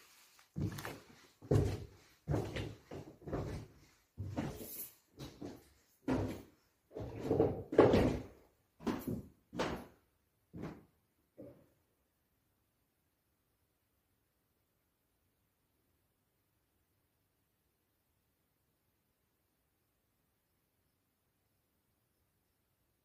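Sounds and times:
heavy footsteps walking: 0.1s - 10.0s.

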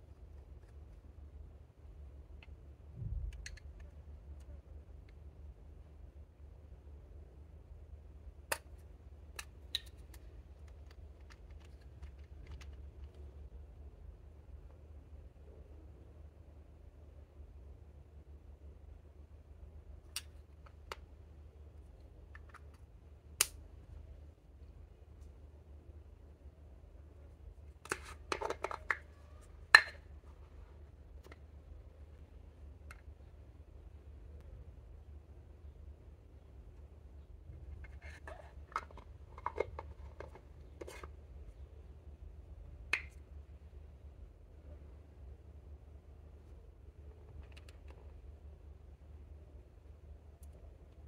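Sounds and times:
faint low hum: 0.0s - 51.0s
small plastic clicks: 3.2s - 5.2s, 8.5s - 13.3s, 20.1s - 21.1s, 47.3s - 48.2s
plastic cap clicks: 27.8s - 29.0s, 38.3s - 41.1s
plastic lid snapping open: 27.8s - 29.0s, 38.7s - 41.1s.

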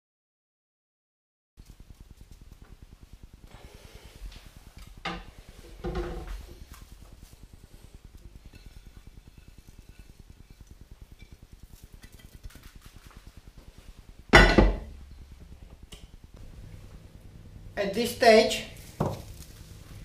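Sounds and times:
spice patter onto meat: 11.6s - 13.4s.

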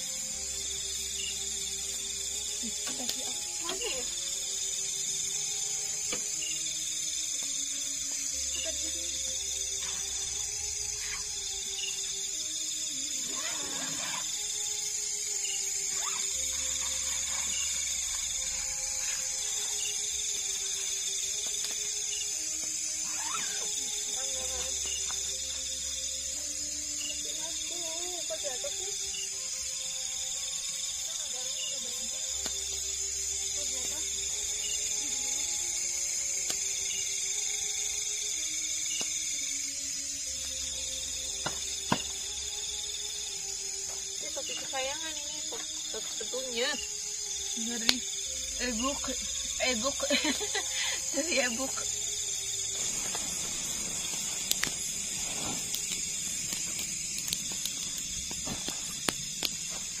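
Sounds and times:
high-pitched hiss: 0.0s - 60.0s
insect chorus drone: 0.0s - 60.0s
camping gear rustling: 15.9s - 24.8s, 52.5s - 60.0s.

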